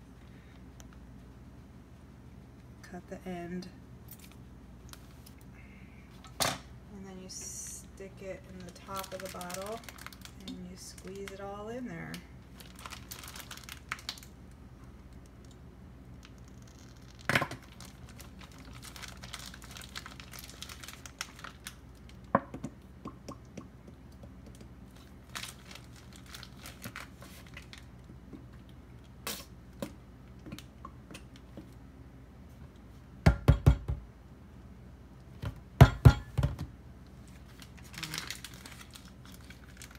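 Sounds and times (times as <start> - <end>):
plastic bag of gel being squeezed: 8.5 - 11.4, 12.4 - 14.6, 16.2 - 22.3, 24.8 - 28.0, 37.3 - 39.9.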